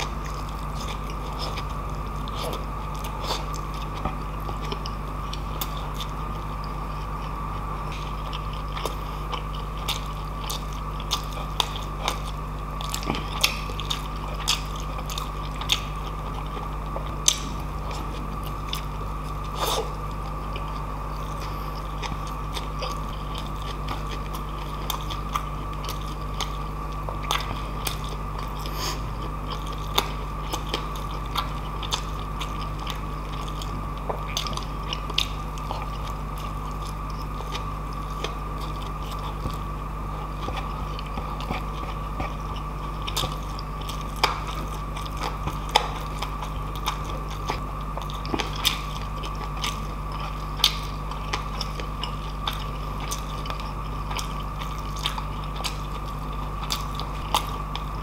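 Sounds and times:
close chewing with mouth clicks: 0:00.0 - 0:58.0
food crunching: 0:00.0 - 0:58.0
steady background hum: 0:00.0 - 0:58.0.

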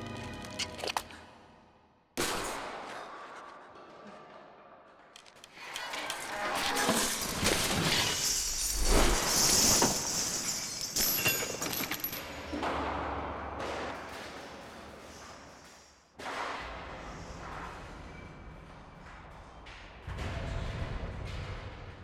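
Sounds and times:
echoing clattering crashes: 0:16.2 - 0:22.0.

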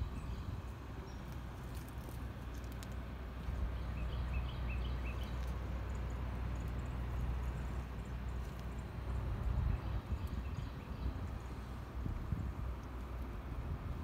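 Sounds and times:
bird chirping: 0:00.0 - 0:01.4, 0:03.7 - 0:11.5
low steady rumble: 0:00.0 - 0:14.0.

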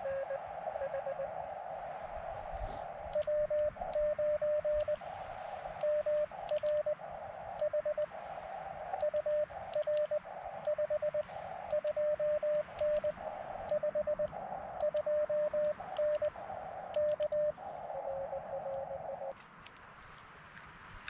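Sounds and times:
radio receiver hiss: 0:00.0 - 0:20.0
morse code tone: 0:03.1 - 0:05.0, 0:05.8 - 0:07.0, 0:07.6 - 0:08.1, 0:09.0 - 0:13.1, 0:13.7 - 0:19.3.

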